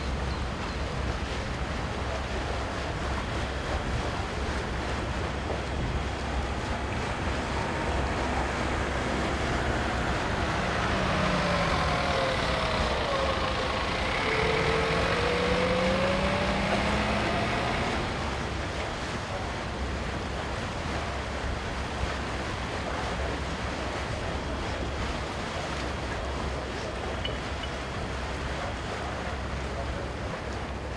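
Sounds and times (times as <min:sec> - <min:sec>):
harbour noise: 0:00.0 - 0:30.9
wind: 0:00.0 - 0:30.9
winch motor whine: 0:07.4 - 0:18.4.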